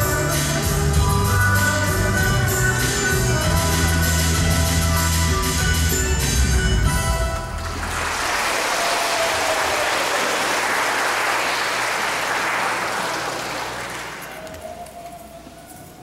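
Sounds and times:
music: 0.0s - 8.6s, 13.4s - 16.0s
audience applauding: 7.5s - 15.0s.

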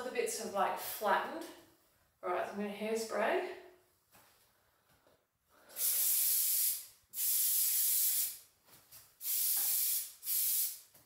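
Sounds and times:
hairspray can hissing: 5.7s - 8.4s, 9.2s - 10.9s.

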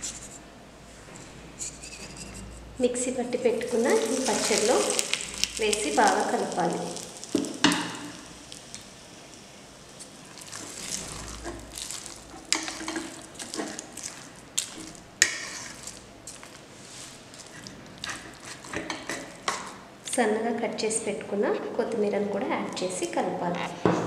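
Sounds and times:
wet mixing sounds: 3.6s - 20.2s.

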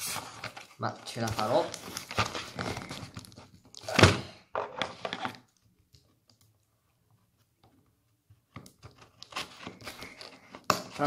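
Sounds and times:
packaging clicks and rustles: 0.1s - 5.6s.

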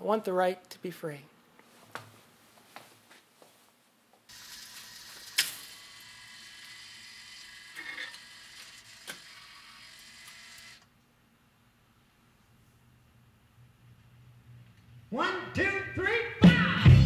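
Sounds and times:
jukebox motor whirring: 4.3s - 10.9s.

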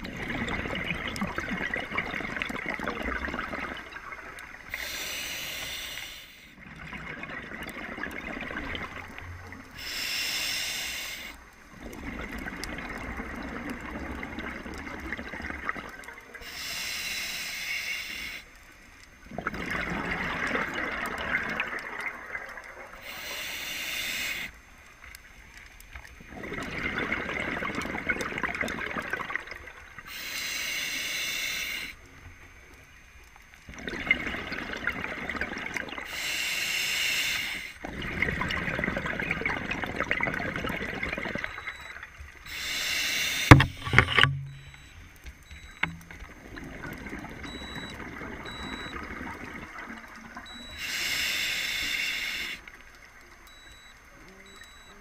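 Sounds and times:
exhaled bubbles rushing: 0.0s - 4.7s, 6.6s - 9.8s, 11.7s - 16.2s, 19.2s - 23.0s, 26.2s - 30.0s, 33.7s - 36.1s, 37.8s - 42.1s, 46.2s - 50.7s
hissing regulator inhale: 4.7s - 6.6s, 9.8s - 11.4s, 16.4s - 18.6s, 23.0s - 24.6s, 30.0s - 32.1s, 36.0s - 37.8s, 42.4s - 44.0s, 50.6s - 52.7s.

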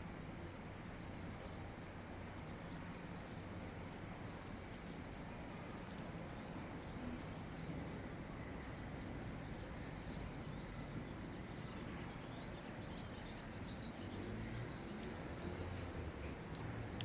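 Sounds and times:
low background noise: 0.0s - 17.0s.

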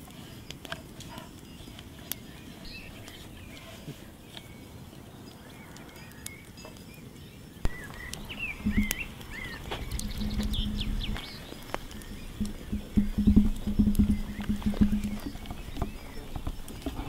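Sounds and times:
small birds chirping: 0.0s - 17.0s
low steady rumble: 7.7s - 16.1s.

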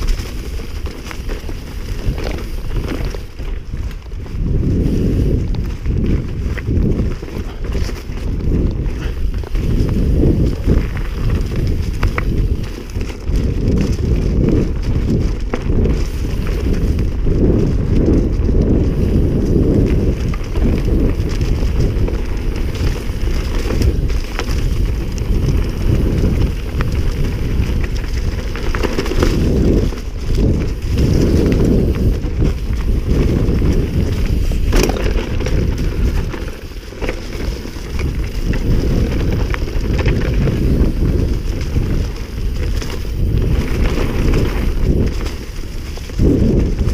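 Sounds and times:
bike rattling over ground: 0.0s - 46.9s
wind buffeting microphone: 0.0s - 46.9s.

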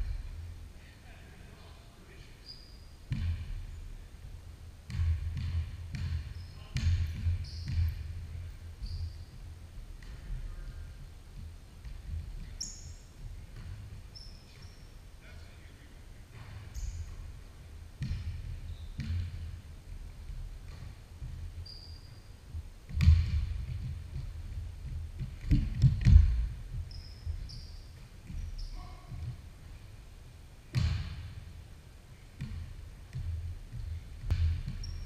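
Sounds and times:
basketball bouncing on wooden floor: 3.1s - 3.8s, 4.9s - 14.8s, 18.0s - 29.8s, 30.7s - 31.4s, 32.4s - 35.0s
short high squeaks: 21.6s - 22.3s.

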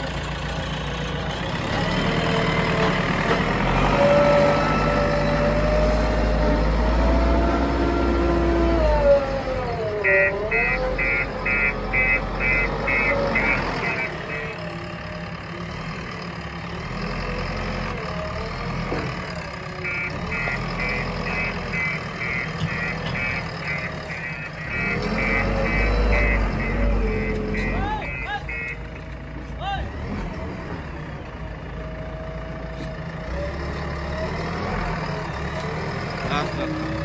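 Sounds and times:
backhoe diesel engine running: 0.0s - 37.0s
reversing alarm beeps: 10.0s - 14.6s, 19.8s - 28.8s.

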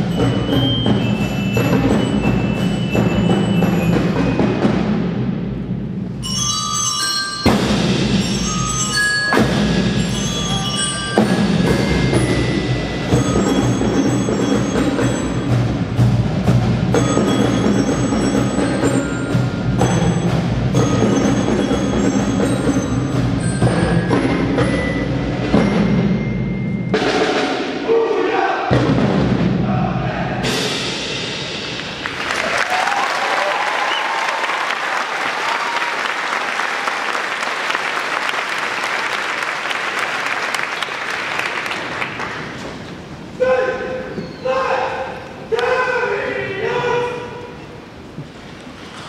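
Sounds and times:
bell-like melody: 0.0s - 4.7s, 6.1s - 27.0s
bass drums and cymbals: 0.0s - 27.8s, 28.8s - 32.1s
crowd applauding: 31.8s - 42.8s.

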